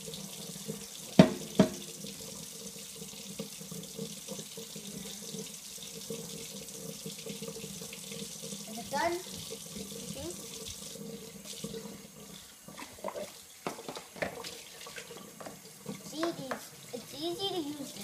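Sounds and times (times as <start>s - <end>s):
tap water running into sink: 0.0s - 18.0s
bowl knocking on sink: 1.2s - 1.9s.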